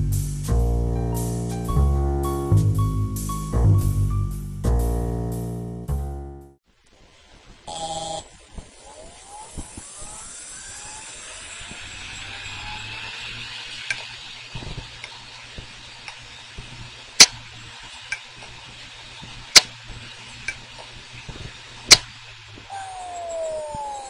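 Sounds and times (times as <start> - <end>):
hard drive motor humming: 7.7 - 24.0.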